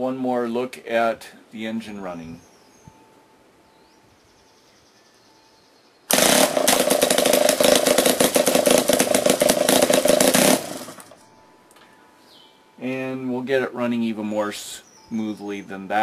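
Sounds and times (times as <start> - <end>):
air-powered two-stroke engine running: 6.1 - 11.2.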